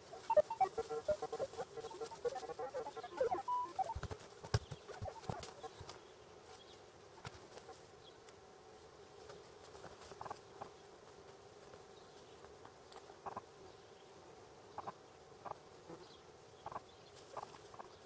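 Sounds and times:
small ticks: 0.1s - 8.4s, 12.4s - 13.5s, 16.6s - 18.0s.

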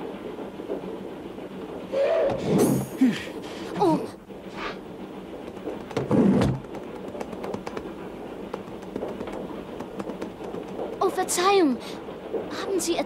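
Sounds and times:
train rumbling: 0.0s - 13.0s.

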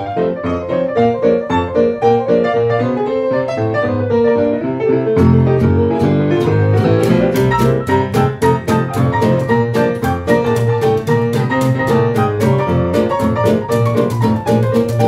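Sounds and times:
small jazz band playing: 0.0s - 15.0s
rhythmic chop: 5.2s - 15.0s.

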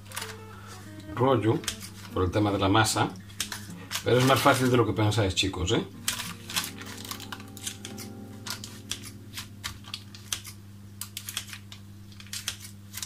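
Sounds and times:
scissors snipping: 1.6s - 2.2s, 3.2s - 4.7s, 6.0s - 13.0s.

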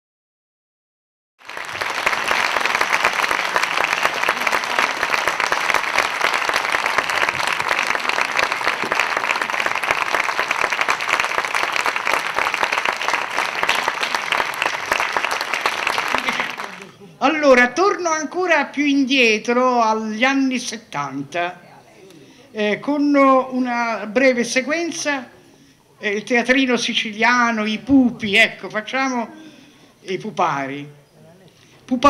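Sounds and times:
audience applauding: 1.4s - 17.0s.

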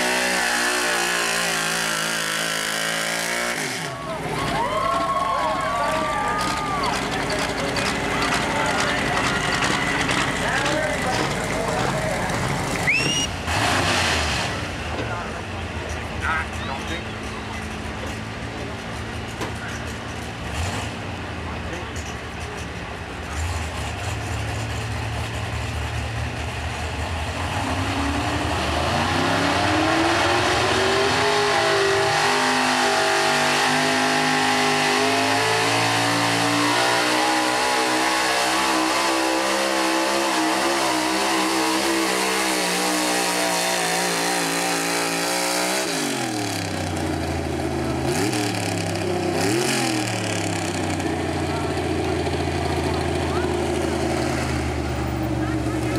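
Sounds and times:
pickup engine revving under load: 23.0s - 55.9s.

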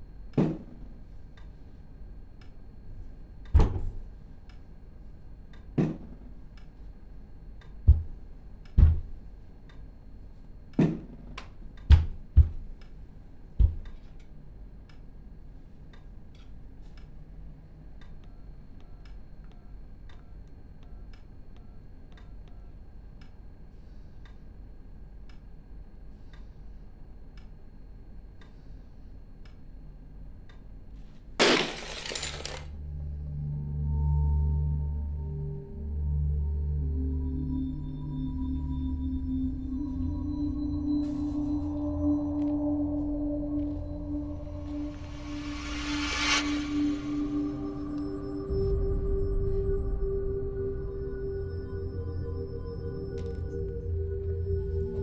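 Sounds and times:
rubber ball bouncing thuds: 8.8s - 9.2s, 11.9s - 12.8s
glass crashing and clattering: 31.4s - 32.7s
low musical drone: 32.7s - 55.0s.

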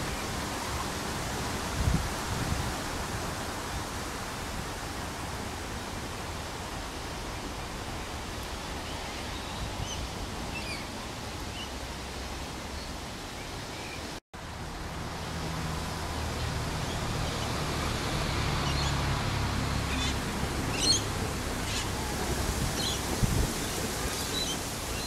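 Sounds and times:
wind buffeting microphone: 0.0s - 11.0s, 15.3s - 25.0s
small birds chirping: 19.8s - 25.0s.

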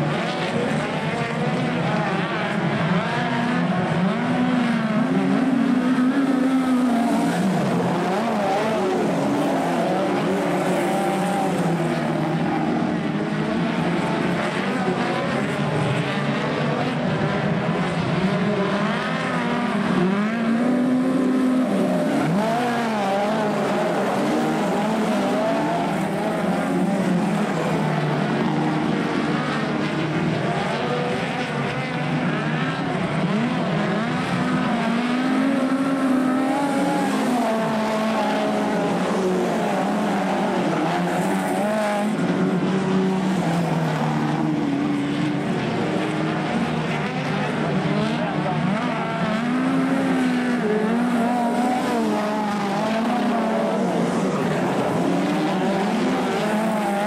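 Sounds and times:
racing car engines revving: 0.0s - 57.0s.

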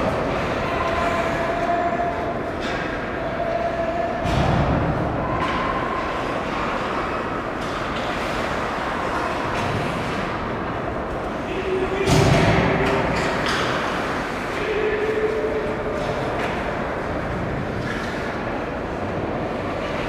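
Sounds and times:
sticks and puck clacking: 5.2s - 20.0s
thud: 12.0s - 13.6s.

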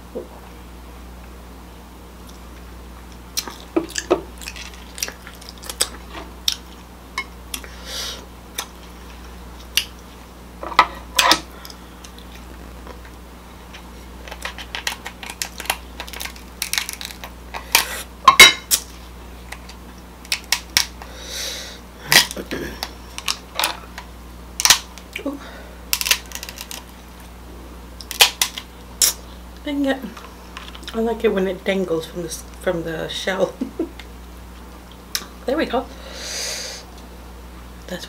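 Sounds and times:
shell cracking: 14.2s - 17.9s, 19.5s - 21.1s, 22.1s - 23.4s, 24.0s - 25.1s, 25.9s - 26.9s, 28.0s - 29.2s.

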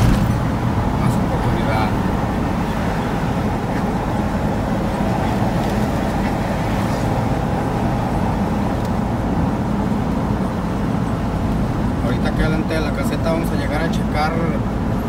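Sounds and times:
engine and road noise in cab: 0.0s - 15.0s.

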